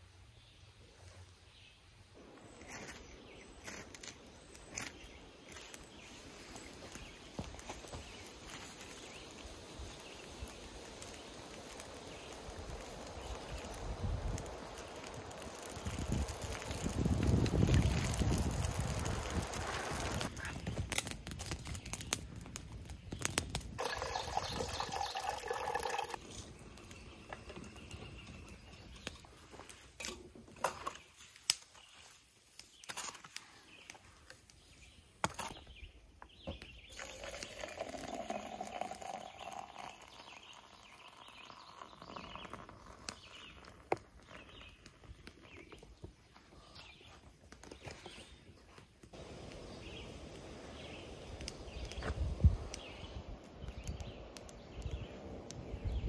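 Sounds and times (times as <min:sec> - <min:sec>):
birds chirping: 0:00.2 - 0:20.8, 0:22.9 - 0:29.9, 0:30.8 - 0:56.0
water poured into french press: 0:23.8 - 0:26.2, 0:36.9 - 0:42.1.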